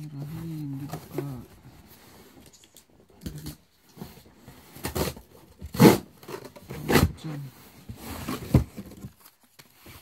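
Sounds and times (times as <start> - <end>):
cardboard box scraping and knocking: 4.0 - 9.2.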